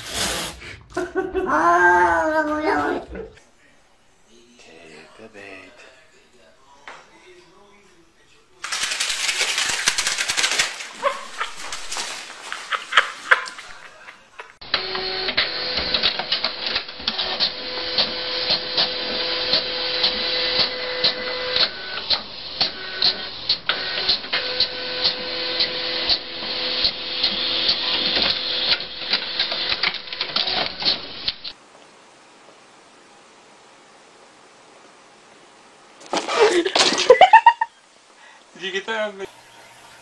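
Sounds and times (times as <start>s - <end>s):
printer motor whine: 14.7s - 29.7s, 39.3s - 40.0s.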